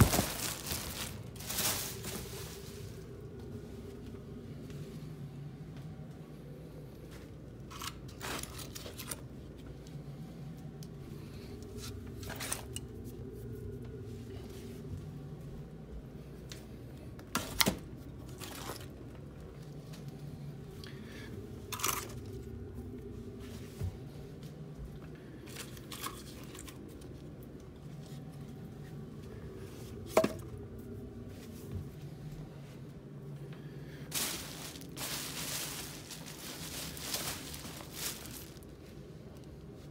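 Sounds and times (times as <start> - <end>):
dry firewood scraping and crunching: 0.0 - 3.0, 34.1 - 38.8
steady low hum: 0.0 - 39.9.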